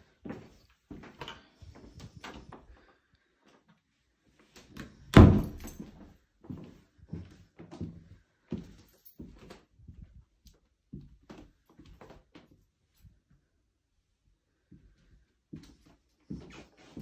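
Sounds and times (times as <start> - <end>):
footsteps on laminate floor: 0.1 - 1.2, 5.4 - 10.2, 14.7 - 17.0.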